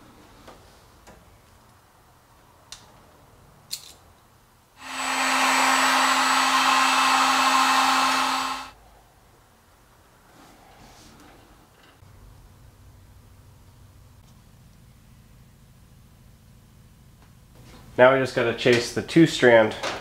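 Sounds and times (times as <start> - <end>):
heat gun blowing: 4.8 - 8.8.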